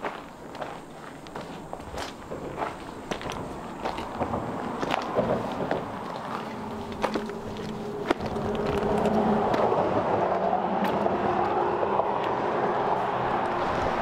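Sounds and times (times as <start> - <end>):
footsteps on gravel: 0.0 - 9.7
rushing noise: 2.2 - 14.0.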